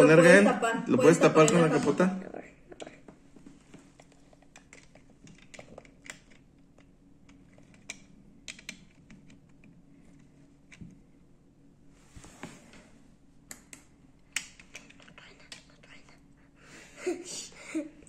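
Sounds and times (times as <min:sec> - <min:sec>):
plastic pieces clicking: 0:04.1 - 0:09.7.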